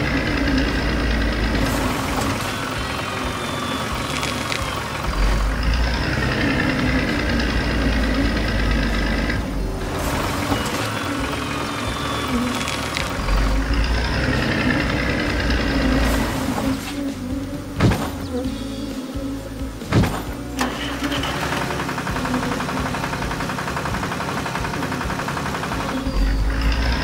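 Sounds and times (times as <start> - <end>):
tractor engine rumble: 0.0 - 27.0.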